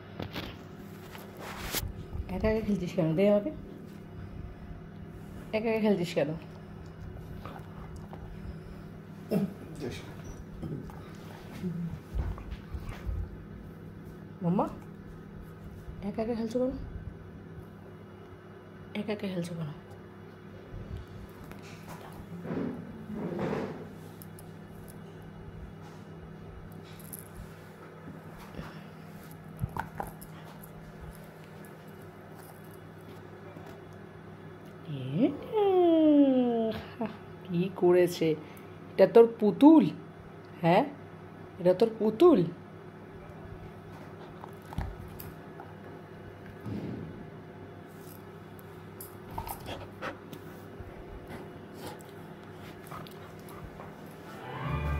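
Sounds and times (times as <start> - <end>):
low room hum: 0.0 - 54.9
dog chewing a toy: 43.9 - 46.0, 51.2 - 54.4.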